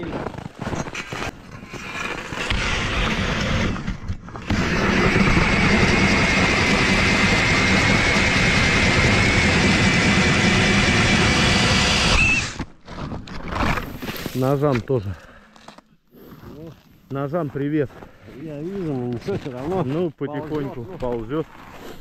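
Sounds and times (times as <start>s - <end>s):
ice auger motor whine: 4.4s - 12.6s.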